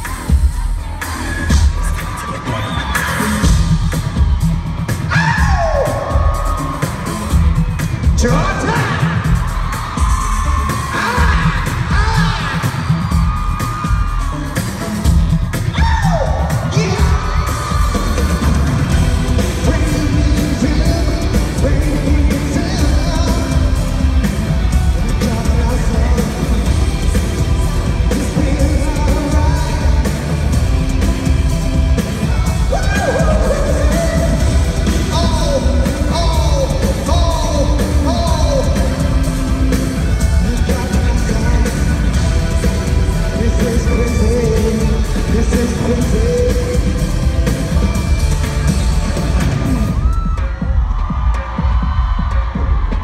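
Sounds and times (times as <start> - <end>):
heavy bass beat: 0.0 - 53.0
pop dance music: 0.0 - 53.0
man singing: 10.6 - 13.0, 15.7 - 17.7, 19.3 - 31.3, 32.6 - 47.3.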